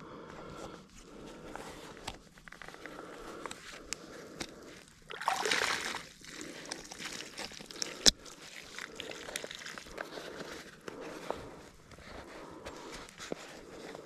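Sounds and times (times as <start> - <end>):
wet bag material crinkling: 4.9 - 11.0
water pouring out of a bag: 5.1 - 10.1.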